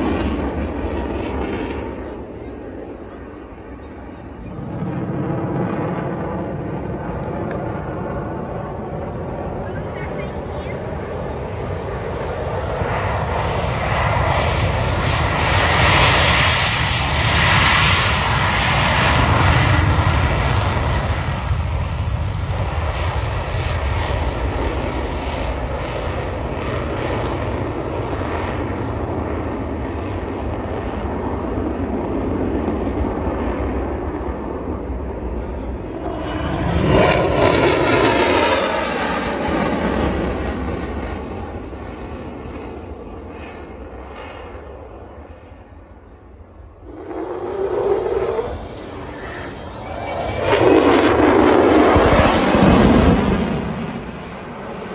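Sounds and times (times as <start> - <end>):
jet engine roar: 0.0 - 54.9.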